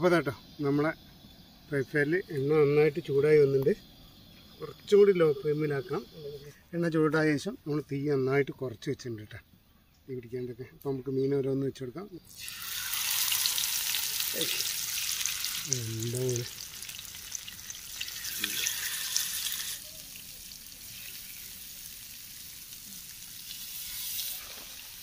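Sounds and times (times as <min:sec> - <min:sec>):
fish sizzling in frying pan: 0:12.3 - 0:25.0.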